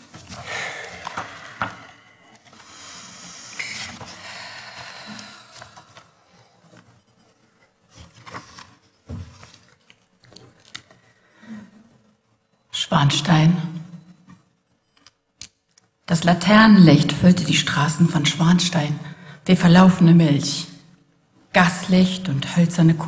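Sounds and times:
paper rustling: 7.9s - 10.8s.

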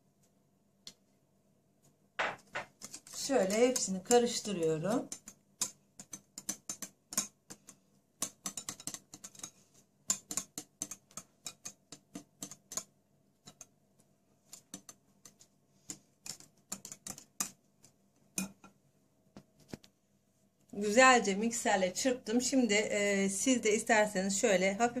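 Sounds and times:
wire whisk clicking on glass bowl: 2.8s - 13.7s, 14.5s - 17.6s.

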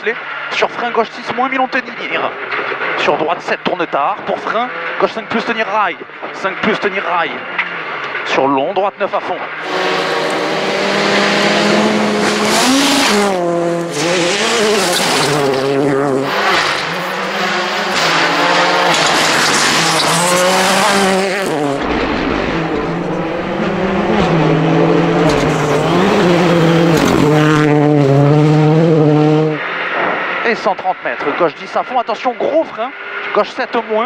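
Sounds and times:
car engine revving hard: 9.5s - 30.4s.

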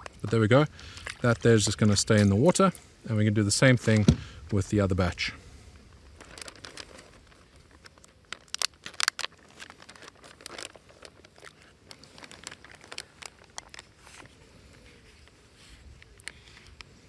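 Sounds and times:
plastic bag crinkling: 0.0s - 2.7s, 5.9s - 16.8s.

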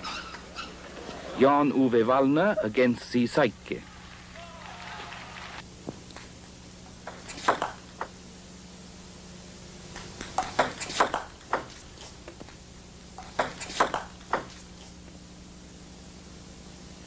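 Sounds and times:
table tennis ball hit by bats: 7.1s - 8.1s, 10.4s - 11.7s, 13.2s - 14.6s
ball bouncing on table: 13.2s - 14.5s.

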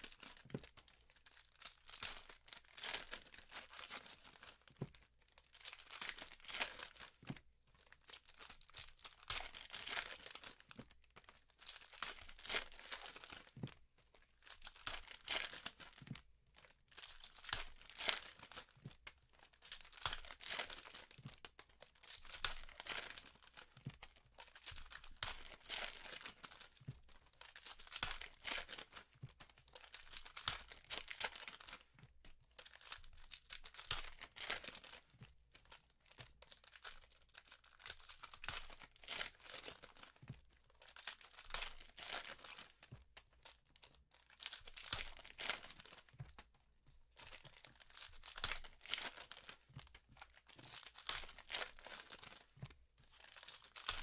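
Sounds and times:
foil wrappers tearing and crinkling: 5.5s - 7.2s, 8.1s - 10.7s, 19.7s - 21.3s, 22.0s - 23.8s, 24.4s - 31.8s, 32.6s - 35.1s, 36.2s - 40.2s, 40.8s - 42.8s, 44.2s - 46.2s, 47.2s - 52.5s, 53.2s - 54.0s.

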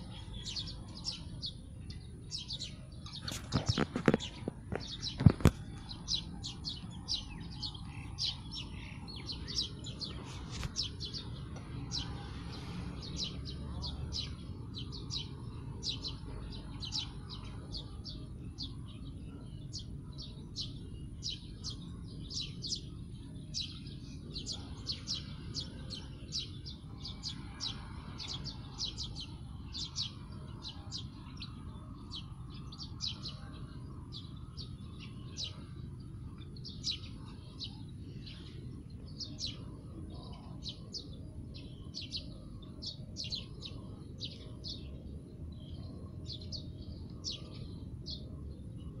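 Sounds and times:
small birds chirping: 0.0s - 49.0s.

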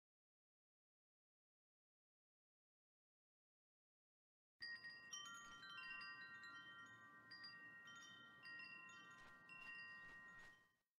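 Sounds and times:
wind chimes ringing: 4.6s - 10.8s.

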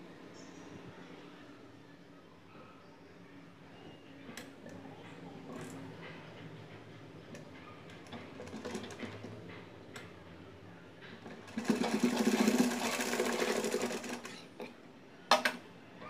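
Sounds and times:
sewing machine stitching: 8.1s - 9.4s, 11.2s - 14.7s.

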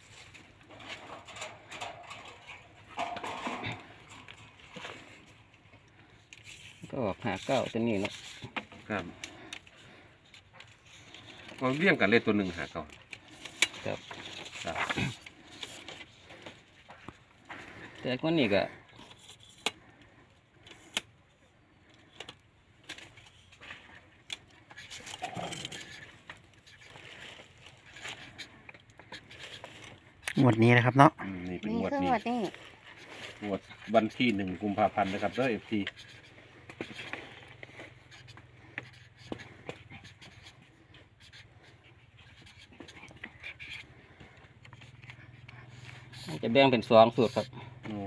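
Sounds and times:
marker scratching across paper: 31.8s - 48.0s.

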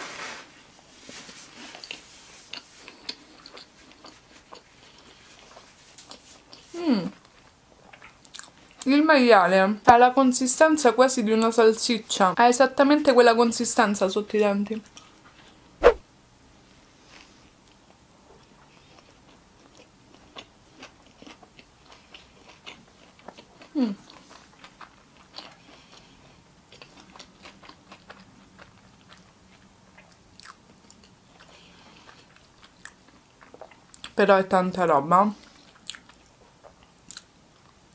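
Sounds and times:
chewing with wet smacks: 1.7s - 8.9s, 18.6s - 34.2s, 35.4s - 37.8s.

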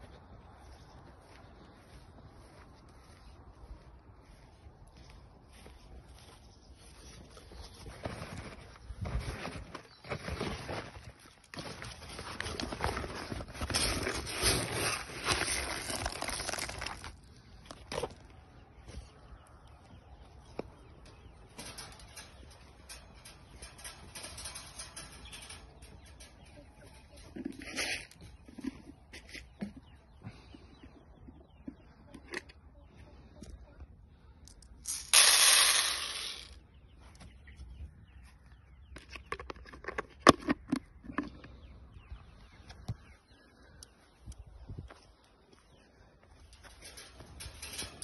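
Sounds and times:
footsteps on grass and dirt: 0.0s - 19.4s
grain pouring into plastic feeder: 34.9s - 36.5s.

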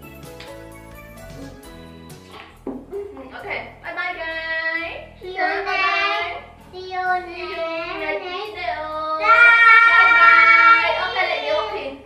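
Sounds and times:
steady backing beat: 0.0s - 11.5s
child singing: 5.2s - 11.7s.

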